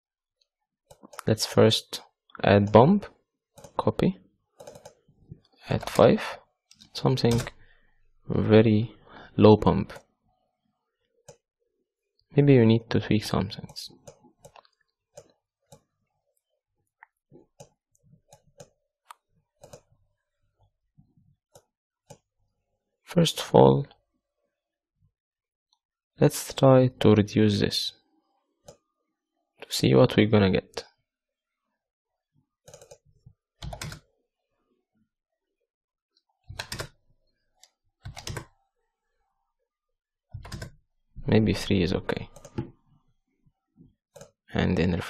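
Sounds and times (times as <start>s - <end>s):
computer keyboard keystrokes: 4.6s - 5.0s, 7.2s - 7.6s, 32.7s - 33.0s, 33.6s - 34.0s, 36.5s - 37.0s, 38.0s - 38.5s, 40.4s - 40.8s.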